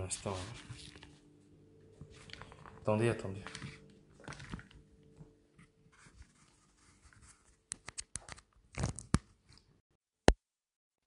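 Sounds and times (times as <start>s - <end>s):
faint scratching on phone: 5.6s - 7.6s.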